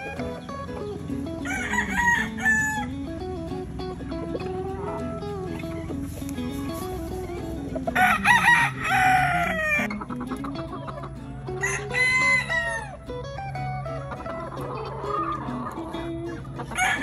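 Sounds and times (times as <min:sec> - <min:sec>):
guitar music: 0:00.0 - 0:17.0
rooster crowing: 0:01.4 - 0:02.9, 0:07.9 - 0:09.9, 0:11.6 - 0:12.9, 0:16.8 - 0:17.0.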